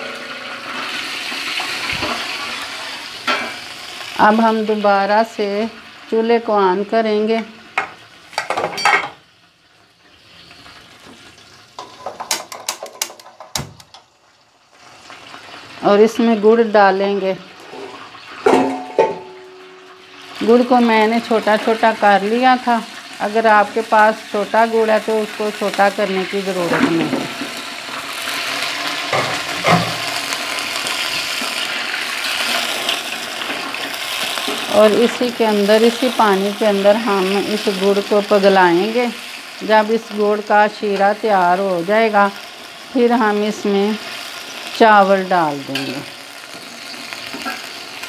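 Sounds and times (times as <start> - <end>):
oil sizzling in a pan: 0.0 - 48.0
chunks dropping into pot: 11.8 - 14.0, 18.4 - 19.8.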